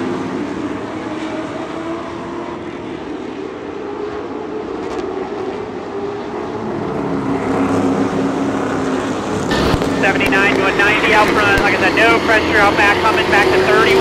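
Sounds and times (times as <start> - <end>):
engine running steadily: 8.0 - 14.0.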